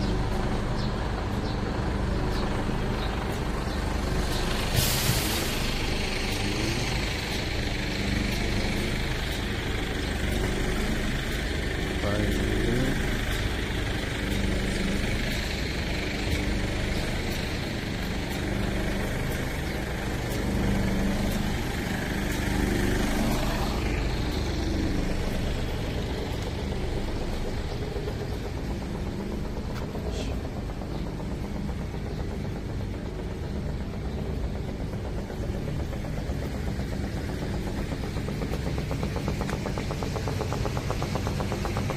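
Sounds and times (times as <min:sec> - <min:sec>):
truck engine idling: 0:00.0 - 0:41.9.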